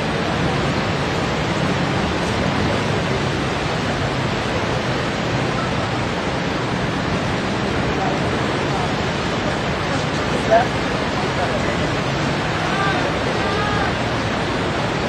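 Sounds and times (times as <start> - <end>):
floodwater rushing: 0.0 - 15.0.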